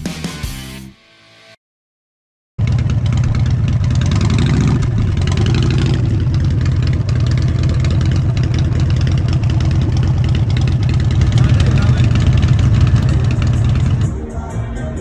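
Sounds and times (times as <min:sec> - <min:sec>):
motorcycle engine idling: 0:02.6 - 0:14.3.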